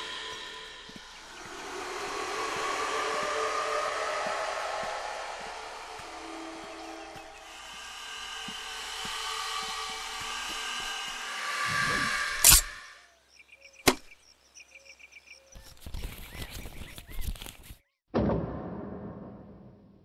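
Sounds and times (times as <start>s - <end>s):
noisy droning swell: 0.0s - 13.0s
sharp click: 12.4s - 12.7s.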